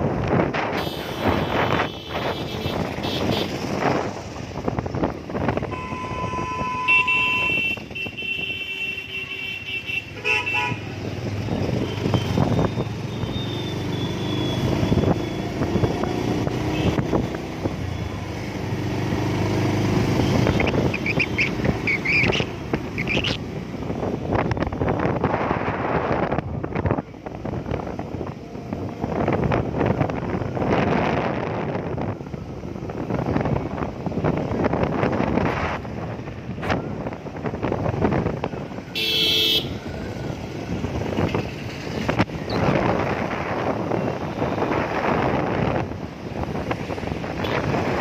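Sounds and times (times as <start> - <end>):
engine and road noise: 0.0 - 48.0
vehicle horns: 0.6 - 3.8, 5.6 - 10.9, 16.6 - 17.2, 38.9 - 40.0.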